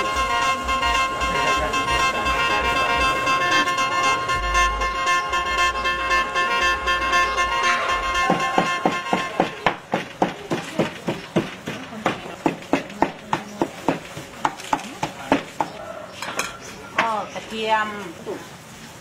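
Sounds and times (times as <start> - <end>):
cleaver chopping on wooden block: 8.3 - 15.8.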